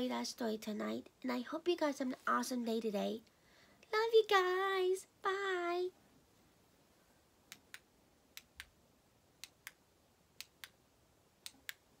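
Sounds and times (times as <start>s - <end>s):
faint sharp clicks in pairs: 7.5s - 8.8s, 9.4s - 9.8s, 10.4s - 10.8s, 11.4s - 12.0s.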